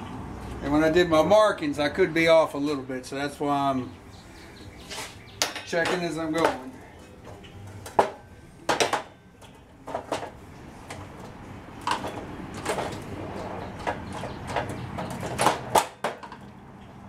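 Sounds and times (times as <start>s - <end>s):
handling noise: 4.8s - 16.5s.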